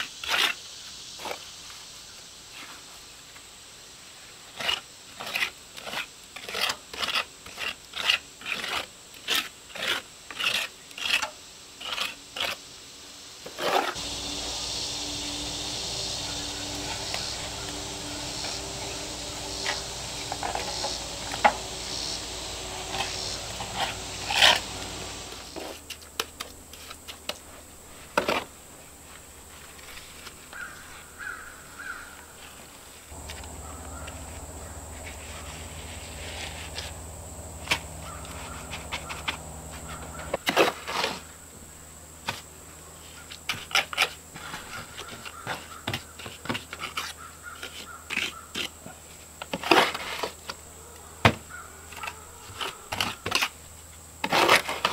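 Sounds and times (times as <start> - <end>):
trowel scraping mortar: 4.5 - 12.6, 16.6 - 26.1, 33.1 - 37.0, 37.6 - 41.3, 43.4 - 50.6, 51.9 - 53.6, 54.2 - 54.9
bird calling: 14.0 - 25.5, 30.5 - 32.4, 33.2 - 40.4, 50.8 - 53.3.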